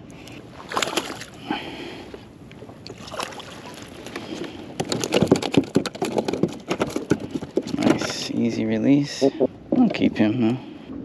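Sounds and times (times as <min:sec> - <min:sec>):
water splashing: 0:00.5 - 0:01.4, 0:02.8 - 0:04.5
knocks and rattles on plastic kayak: 0:04.0 - 0:08.5.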